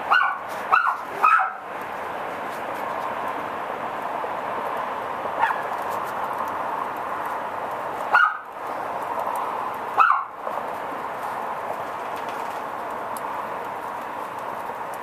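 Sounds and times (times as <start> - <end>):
dog barking: 0.1 - 1.6, 5.4 - 5.7, 8.1 - 8.5, 10.0 - 10.3.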